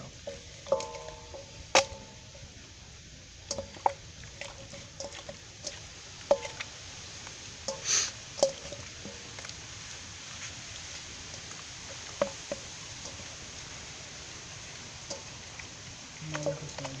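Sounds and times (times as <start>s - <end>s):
knocks on ringing metal bowl: 0.7s - 2.2s
hands squishing marinade into chicken: 3.5s - 17.0s.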